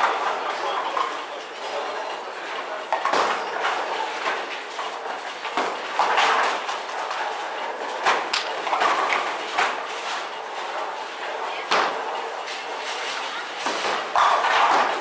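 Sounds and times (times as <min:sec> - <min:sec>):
bowling balls rolling: 0:00.0 - 0:15.0
bowling pins clattering: 0:13.5 - 0:15.0.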